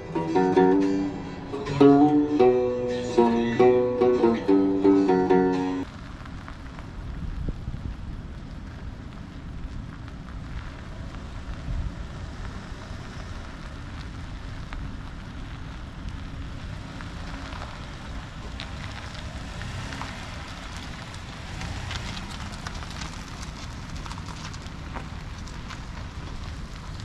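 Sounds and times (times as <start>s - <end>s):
faint crackles: 4.8s - 27.0s
wind buffeting microphone: 6.1s - 27.0s.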